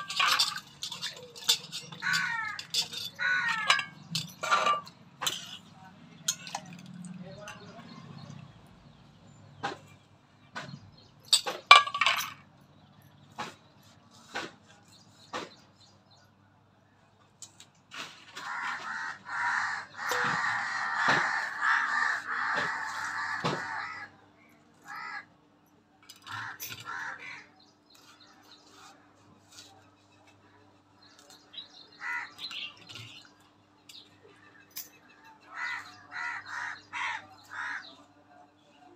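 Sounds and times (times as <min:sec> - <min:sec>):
crows cawing: 0:01.9 - 0:04.0, 0:18.3 - 0:24.2, 0:24.8 - 0:25.3, 0:26.2 - 0:27.6, 0:32.0 - 0:32.6, 0:35.1 - 0:38.0.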